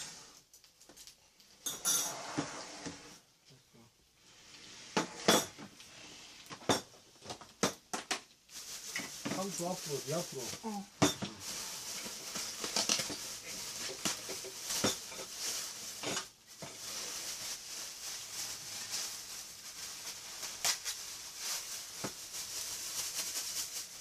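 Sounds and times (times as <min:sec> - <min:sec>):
plastic bags rustling: 0:06.5 - 0:24.0.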